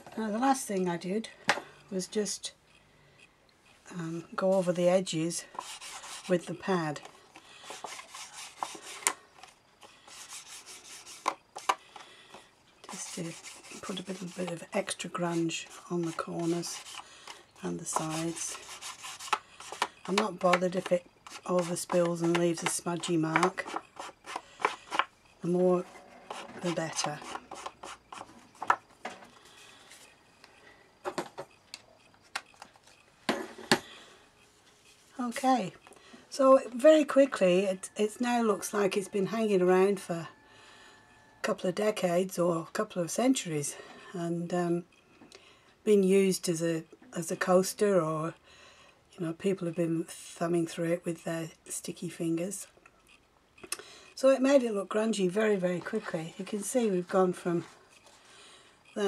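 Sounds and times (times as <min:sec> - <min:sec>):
ink pad scraping on paper: 0:03.9 - 0:11.8, 0:12.8 - 0:28.8.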